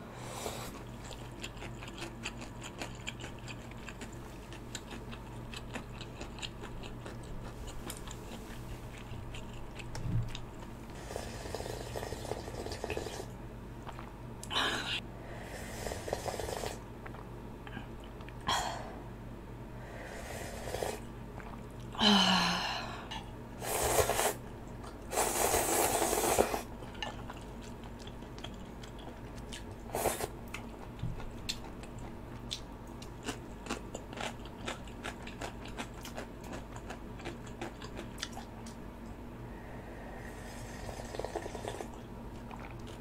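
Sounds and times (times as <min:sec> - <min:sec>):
soft chewing and mouth clicks: 0:00.7 - 0:10.9, 0:13.8 - 0:14.6, 0:17.0 - 0:18.4, 0:21.3 - 0:22.0, 0:26.8 - 0:29.8, 0:30.4 - 0:39.2, 0:41.4 - 0:43.0
slurping noodles: 0:11.0 - 0:13.3, 0:15.5 - 0:16.8, 0:20.1 - 0:21.6, 0:23.6 - 0:24.4, 0:25.1 - 0:26.7, 0:29.9 - 0:30.3, 0:40.2 - 0:42.0.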